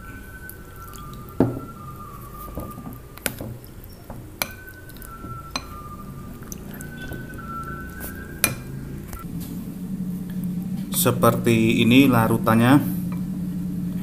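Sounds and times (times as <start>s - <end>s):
water pouring into bowl: 0.7s - 1.6s
stirring in a bowl: 0.7s - 8.7s.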